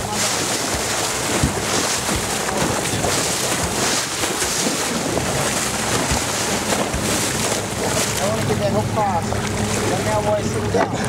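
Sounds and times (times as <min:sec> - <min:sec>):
fish thrashing at surface: 0:00.0 - 0:08.5
water splashing against hull: 0:00.0 - 0:11.0
wind rumbling on microphone: 0:00.0 - 0:11.0.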